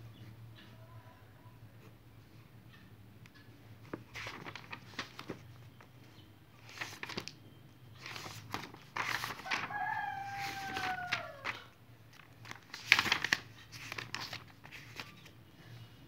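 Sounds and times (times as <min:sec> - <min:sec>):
book pages turning and rustling: 0:03.8 - 0:05.9, 0:06.6 - 0:07.4, 0:08.0 - 0:15.4
drawn-out falling pitched call: 0:09.7 - 0:11.7.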